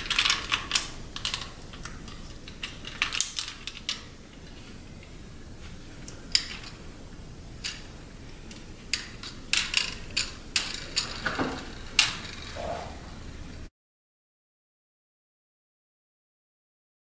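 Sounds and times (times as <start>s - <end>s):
plastic toy clicking and ratcheting: 0.0s - 4.0s, 8.5s - 12.5s.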